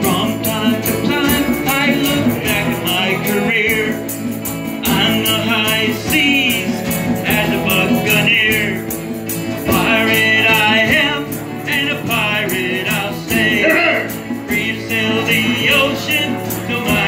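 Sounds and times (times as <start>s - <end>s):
strummed acoustic guitar: 0.0s - 17.0s
tambourine: 0.0s - 17.0s.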